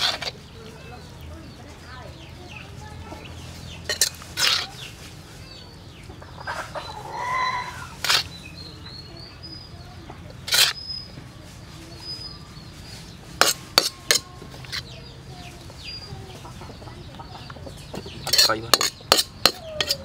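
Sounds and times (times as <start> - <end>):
metal ladle scraping a wok: 0.0 - 0.4, 3.6 - 4.9, 7.6 - 8.4, 10.4 - 10.9, 13.1 - 15.0, 18.2 - 20.0
small birds chirping: 0.0 - 20.0
chicken clucking: 2.1 - 9.0, 11.7 - 20.0.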